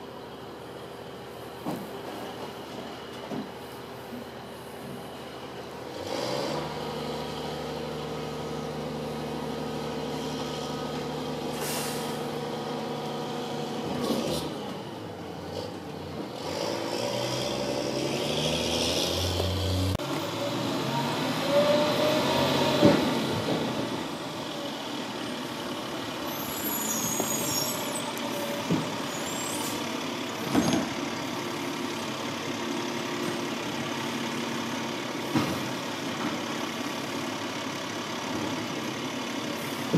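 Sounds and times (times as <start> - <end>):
loud air hiss: 11.5 - 12.3
knocks of truck body and bins: 22.7 - 23.6, 28.6 - 29.0, 35.2 - 36.4.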